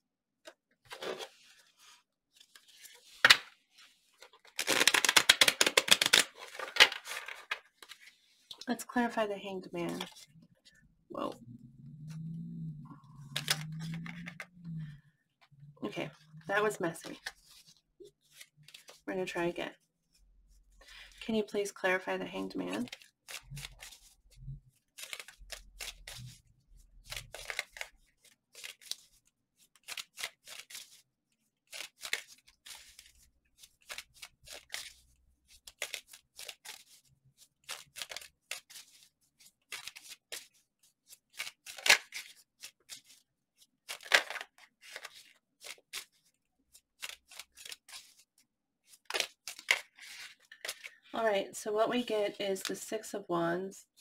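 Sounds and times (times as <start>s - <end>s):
cards shuffling: 0.9s - 8.6s, 13.2s - 14.5s, 24.8s - 26.4s, 27.0s - 31.0s, 31.7s - 43.2s, 43.8s - 48.3s, 48.9s - 51.0s.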